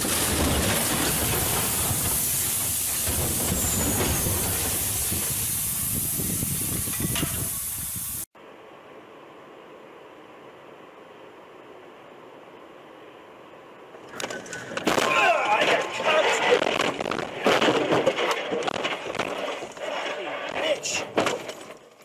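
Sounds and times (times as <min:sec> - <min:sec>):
rocks tumbling: 0:13.9 - 0:22.0.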